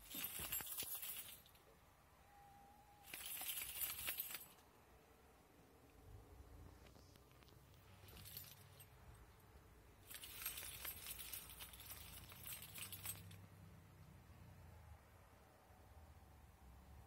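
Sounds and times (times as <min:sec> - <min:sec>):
metallic jingling: 0:00.0 - 0:01.7, 0:03.0 - 0:04.7, 0:07.8 - 0:13.7.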